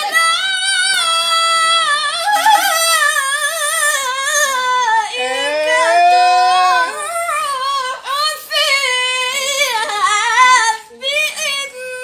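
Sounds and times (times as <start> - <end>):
person chanting recitation: 4.4 - 8.0.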